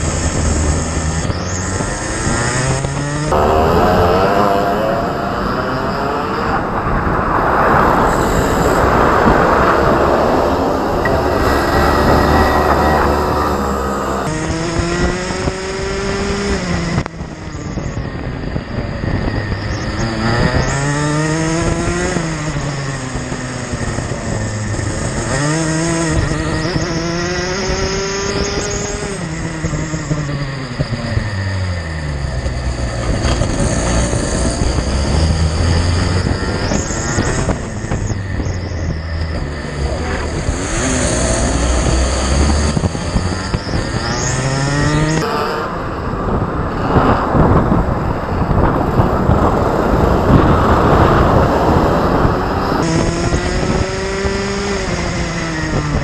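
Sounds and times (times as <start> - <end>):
kart engine revving: 0.0 - 56.0
wind rushing: 0.0 - 56.0.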